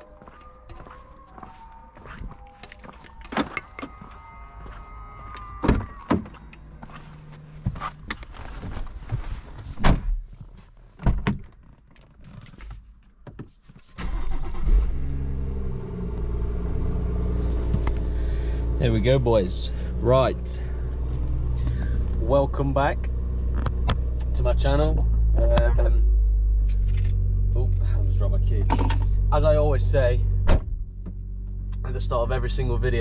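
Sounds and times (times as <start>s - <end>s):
car engine starting and idling: 2.9s - 9.3s, 14.0s - 33.0s.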